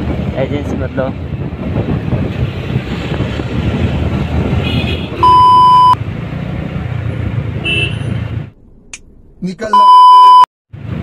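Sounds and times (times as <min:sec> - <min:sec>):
motorcycle engine and wind rumble: 0:00.0 - 0:08.5
censor bleep: 0:05.2 - 0:06.0, 0:09.7 - 0:10.5.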